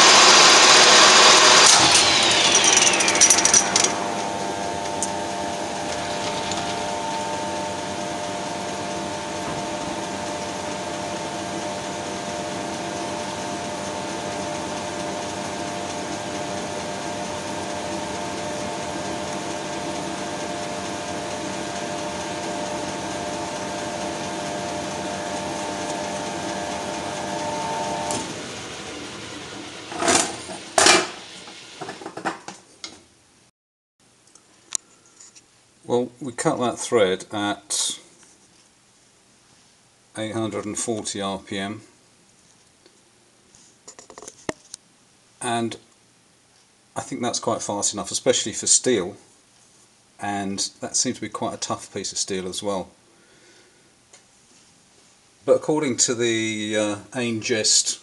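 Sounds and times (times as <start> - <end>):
lathe running with a whine: 0.0 - 32.0.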